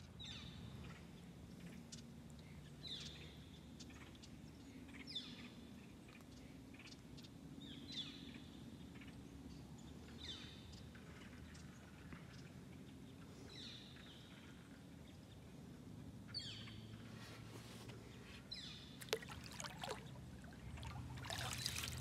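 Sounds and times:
bird calling: 18.5s - 22.0s.

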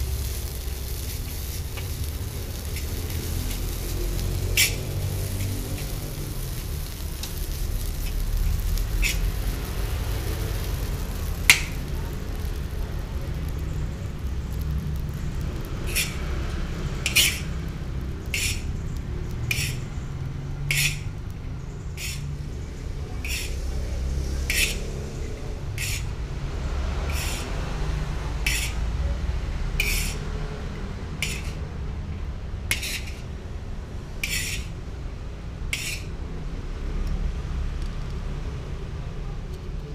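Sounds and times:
steady low rumble: 0.0s - 29.8s
spoon scraping a steel wok: 0.2s - 12.7s, 15.8s - 16.4s, 17.0s - 21.2s, 21.8s - 26.1s, 27.0s - 27.8s, 28.4s - 28.9s, 29.7s - 30.3s, 31.2s - 31.7s, 32.7s - 33.4s, 34.2s - 34.8s, 35.7s - 36.2s.

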